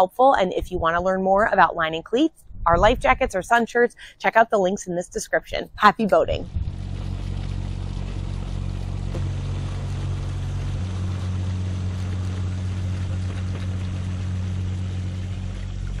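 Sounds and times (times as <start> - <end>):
wind: 0.0 - 16.0
motorboat engine drone: 6.4 - 16.0
water rushing: 6.7 - 16.0.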